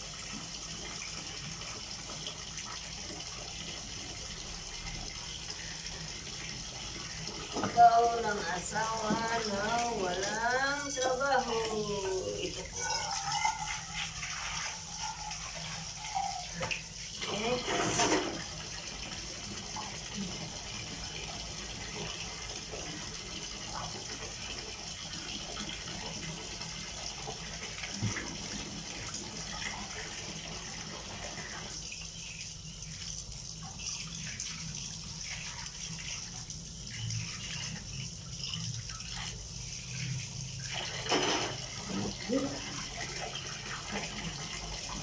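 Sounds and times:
tap water splashing into basin: 0:06.4 - 0:11.8, 0:16.2 - 0:30.2, 0:37.2 - 0:45.0.

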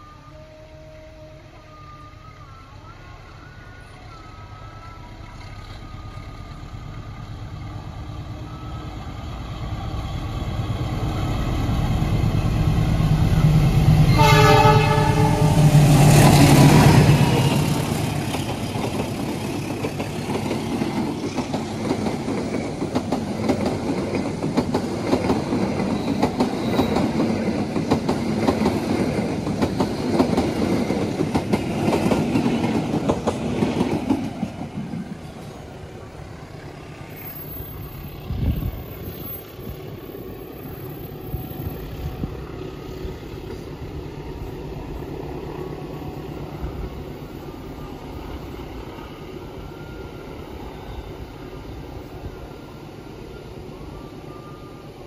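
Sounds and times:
diesel locomotive engine drone: 0:00.0 - 0:55.0
train horn blast: 0:14.0 - 0:17.8
train wheels clattering on rails: 0:15.8 - 0:35.8.

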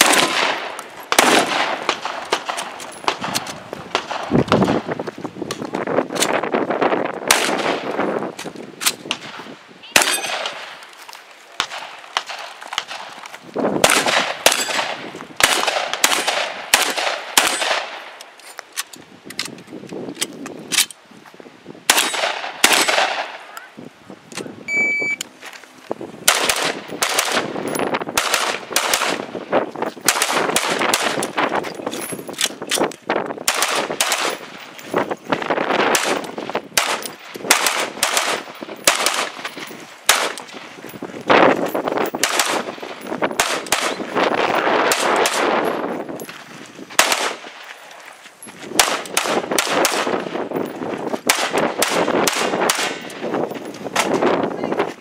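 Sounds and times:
rapid gunfire: 0:00.0 - 0:03.4, 0:26.3 - 0:27.5, 0:28.2 - 0:29.3, 0:36.8 - 0:39.4, 0:42.2 - 0:42.8, 0:44.6 - 0:45.6, 0:47.0 - 0:47.4, 0:48.8 - 0:50.2, 0:51.3 - 0:53.0.

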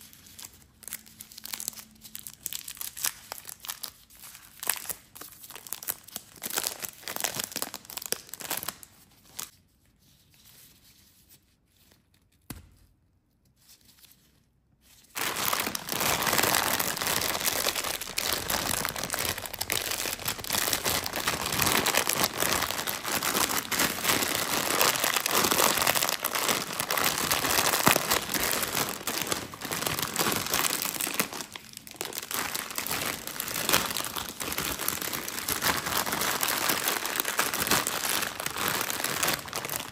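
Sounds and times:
plastic bag crackling: 0:15.1 - 0:39.9
snack wrapper crinkling and tearing: 0:15.2 - 0:39.9.

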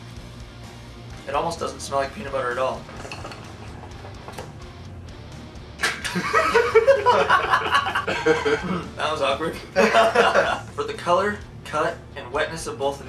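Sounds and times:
young men laughing: 0:05.8 - 0:10.7.

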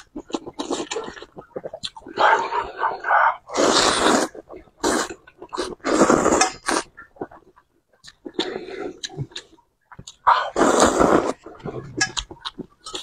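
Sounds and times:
person chewing: 0:00.0 - 0:13.0
person slurping noodles: 0:00.6 - 0:07.4, 0:10.3 - 0:12.0.

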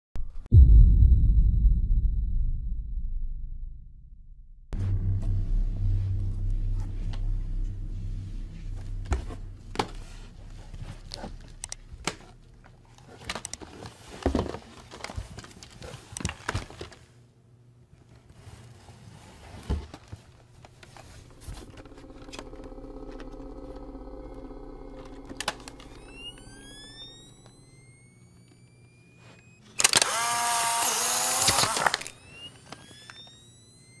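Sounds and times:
low rumble: 0:00.5 - 0:12.9, 0:21.0 - 0:27.8
steady low hum: 0:00.6 - 0:13.7, 0:20.7 - 0:29.6.

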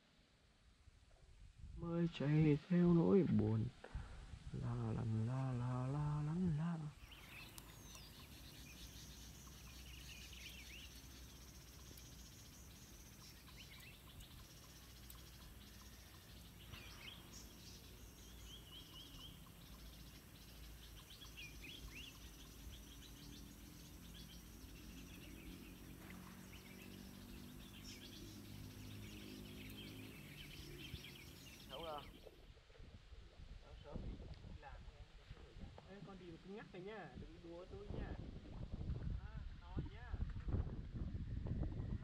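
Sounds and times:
faint low rumble: 0:00.0 - 0:42.0
birds chirping: 0:04.6 - 0:32.4.

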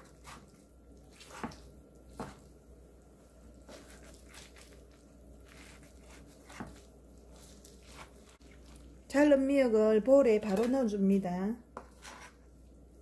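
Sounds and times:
knife cutting on wooden board: 0:05.5 - 0:08.4, 0:11.8 - 0:12.4.

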